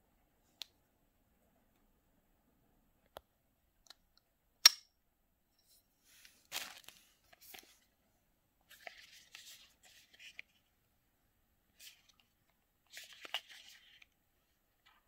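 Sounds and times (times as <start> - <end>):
tissue paper crinkling: 6.1 - 7.9.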